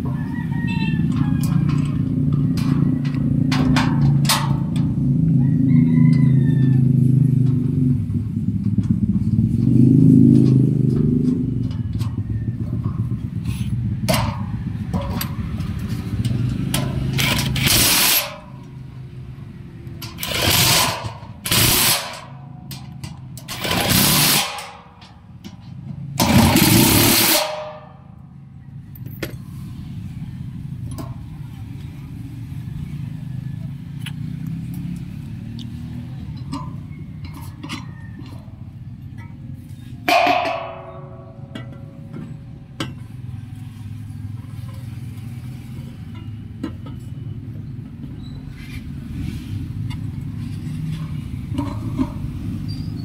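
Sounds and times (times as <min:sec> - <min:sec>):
vehicle engine rumbling: 0:00.0 - 0:53.0
impact driver bursts: 0:17.2 - 0:18.4, 0:20.2 - 0:22.4, 0:23.5 - 0:24.9.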